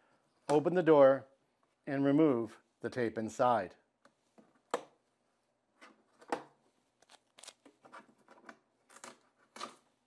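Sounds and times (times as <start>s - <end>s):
tape peeling off plastic: 7.0s - 7.7s.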